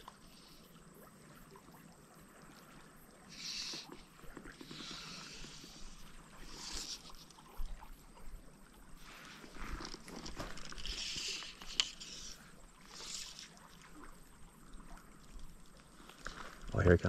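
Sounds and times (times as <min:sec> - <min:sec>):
fly line hissing: 0:03.2 - 0:08.0, 0:09.0 - 0:14.2.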